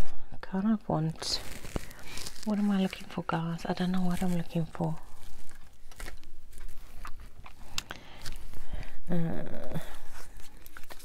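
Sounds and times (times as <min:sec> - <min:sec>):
paper rustling: 0:01.0 - 0:09.1, 0:09.8 - 0:11.0
person humming: 0:08.8 - 0:10.3.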